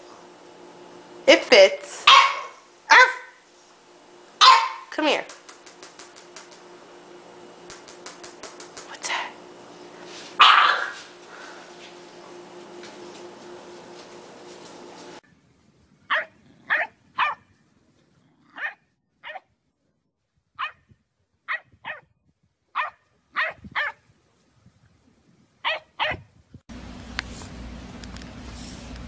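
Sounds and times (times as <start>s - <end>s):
dog barking: 2.0s - 3.4s, 4.4s - 4.9s, 10.4s - 11.0s, 16.1s - 17.5s, 18.4s - 19.4s, 20.6s - 20.8s, 21.5s - 22.1s, 22.8s - 24.0s, 25.6s - 26.3s.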